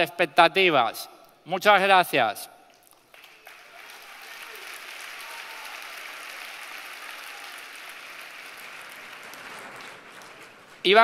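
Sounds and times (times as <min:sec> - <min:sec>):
large crowd applauding: 0:02.8 - 0:11.0.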